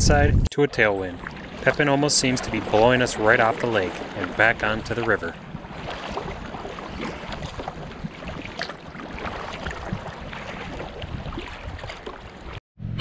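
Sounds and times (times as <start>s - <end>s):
wind buffeting microphone: 0.0s - 13.0s
water splashing against kayak: 0.8s - 12.6s.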